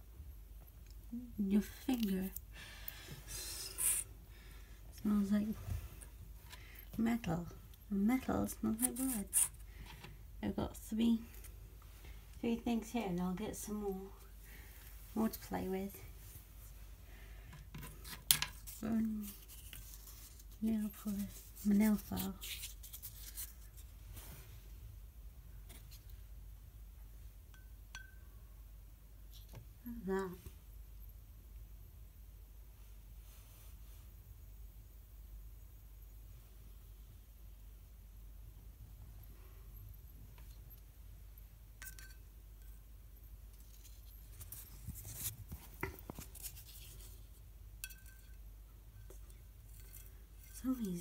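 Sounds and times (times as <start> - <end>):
faint low hum: 0.0 - 51.0
light clicks and scrapes on glass: 41.8 - 42.8, 43.5 - 51.0.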